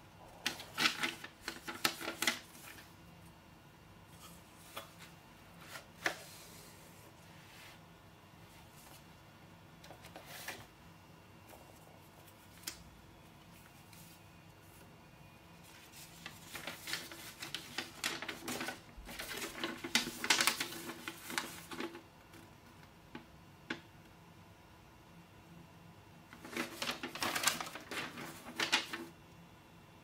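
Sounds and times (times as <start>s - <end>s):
paper crinkling and rustling: 0.4s - 3.0s, 4.1s - 7.2s, 9.8s - 10.7s, 15.6s - 23.8s, 26.3s - 29.2s.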